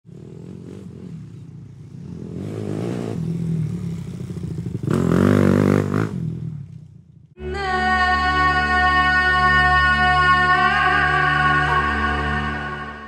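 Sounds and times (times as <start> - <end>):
motorcycle engine revving: 0.0 - 7.4.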